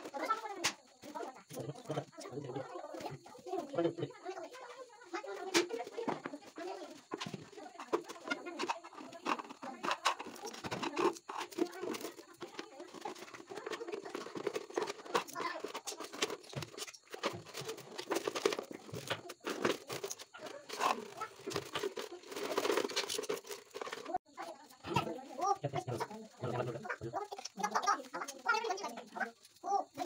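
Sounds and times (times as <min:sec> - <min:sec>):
plastic bottle crinkling: 0:05.6 - 0:24.2.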